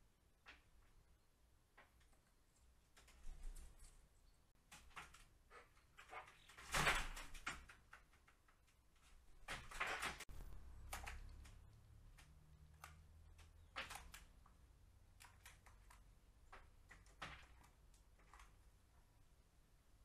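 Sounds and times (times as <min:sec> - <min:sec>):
bird pecking on ledge: 0:06.0 - 0:19.1
low steady hum: 0:10.3 - 0:15.3.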